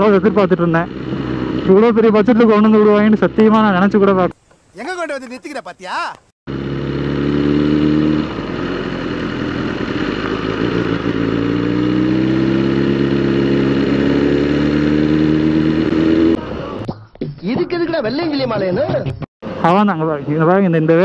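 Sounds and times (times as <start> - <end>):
motorcycle engine running: 0.0 - 4.3, 6.5 - 16.9.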